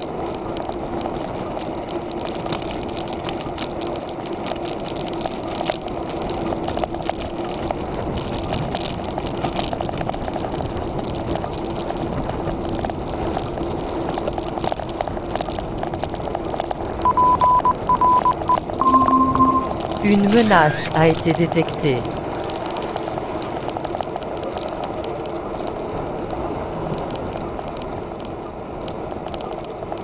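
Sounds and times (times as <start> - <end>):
road and wind noise: 0.0 - 30.0
short high electronic beeps: 17.1 - 21.0.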